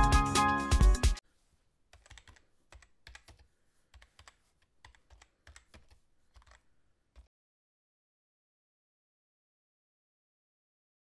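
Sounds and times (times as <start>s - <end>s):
faint keyboard typing: 1.9s - 7.3s.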